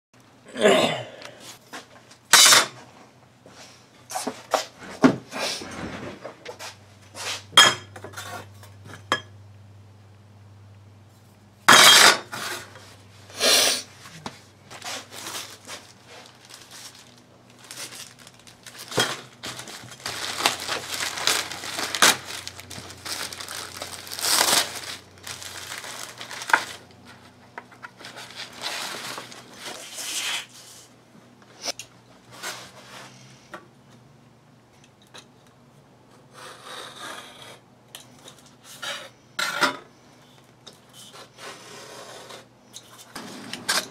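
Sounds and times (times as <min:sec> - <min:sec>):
paper rustling: 0:14.0 - 0:30.9.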